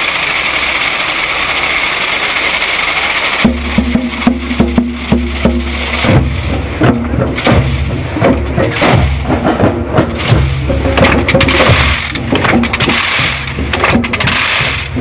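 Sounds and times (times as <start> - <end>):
steady low hum: 0.0 - 15.0
wooden knocks and drum strokes: 3.2 - 15.0.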